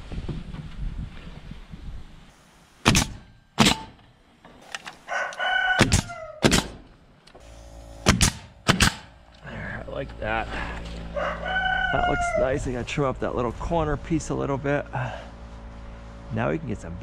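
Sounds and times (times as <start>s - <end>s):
nail gun firing: 2.8s - 4.0s, 5.8s - 6.9s, 7.9s - 9.2s
rooster crowing: 5.0s - 6.4s, 11.0s - 12.7s.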